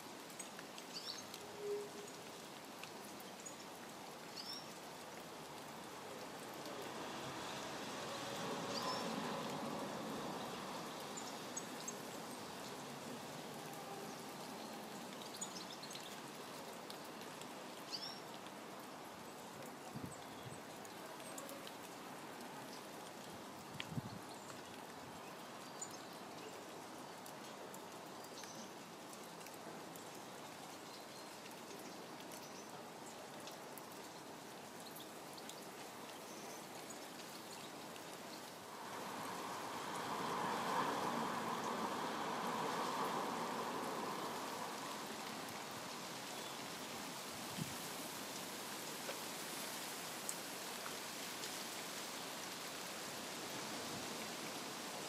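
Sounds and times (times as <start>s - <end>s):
steady rain falling: 0.0s - 55.0s
rushing noise: 38.7s - 45.4s.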